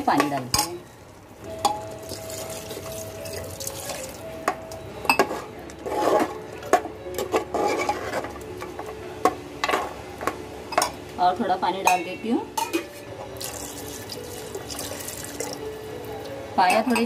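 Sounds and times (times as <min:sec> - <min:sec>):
water pouring into pot: 0:13.4 - 0:15.6.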